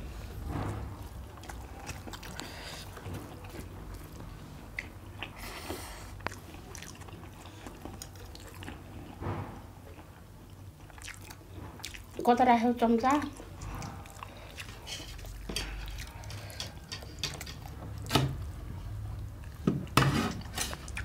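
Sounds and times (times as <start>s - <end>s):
chewing and mouth noises: 1.0s - 9.2s, 9.9s - 12.4s, 13.0s - 18.2s, 19.1s - 21.0s.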